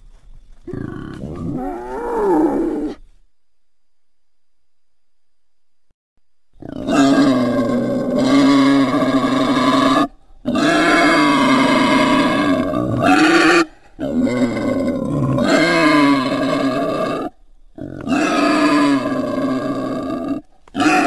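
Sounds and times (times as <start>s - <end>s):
wild boar calls: 0.7s - 3.0s, 6.6s - 21.0s.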